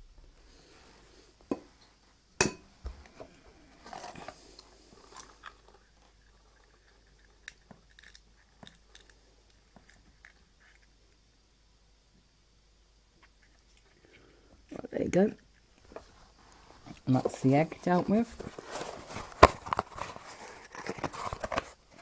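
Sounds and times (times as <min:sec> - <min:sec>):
eggshell crackling: 0:03.4 - 0:11.3.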